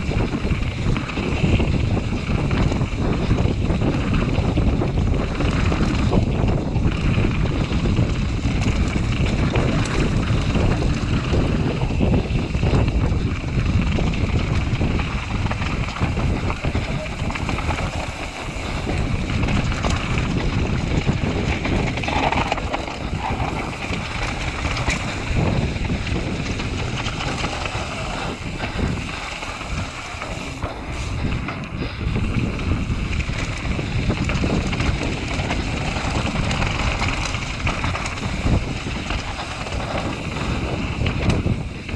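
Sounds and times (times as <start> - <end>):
mountain bike rumble and rattle: 0.0 - 41.9
wind buffeting microphone: 0.0 - 41.9.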